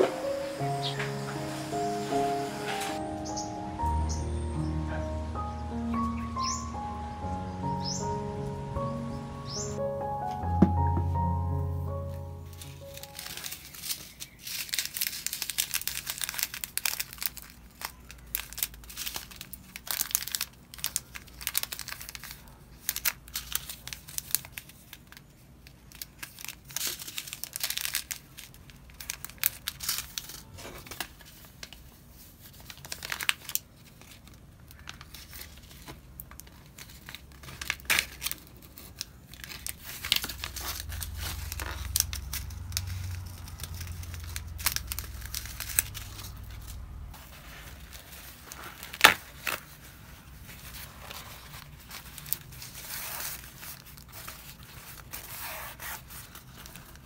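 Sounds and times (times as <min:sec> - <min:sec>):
plastic packets crinkling: 0:12.0 - 0:57.0.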